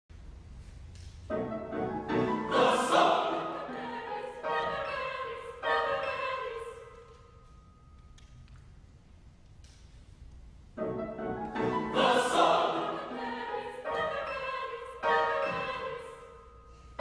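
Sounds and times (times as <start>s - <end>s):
choir singing in a church: 1.3s - 7.6s, 10.8s - 17.0s.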